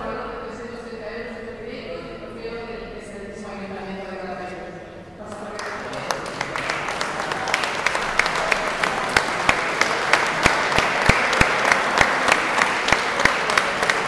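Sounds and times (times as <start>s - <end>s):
audience applauding: 5.3s - 14.0s
nearby hand claps: 5.3s - 14.0s.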